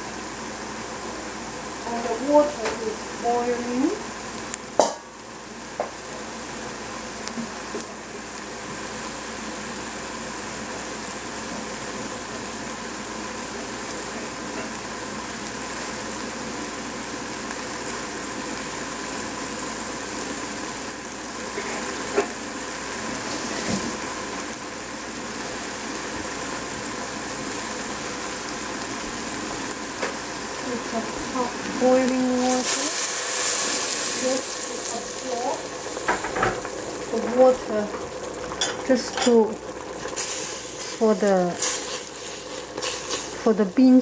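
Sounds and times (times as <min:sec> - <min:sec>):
water bubbling in a pot: 0:34.4 - 0:41.1.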